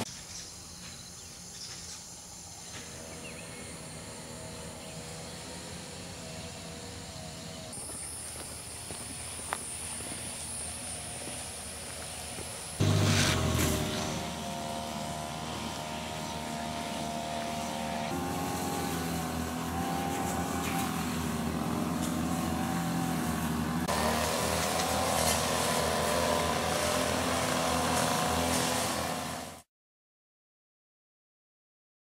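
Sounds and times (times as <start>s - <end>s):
vehicle engine running: 0.7s - 29.6s.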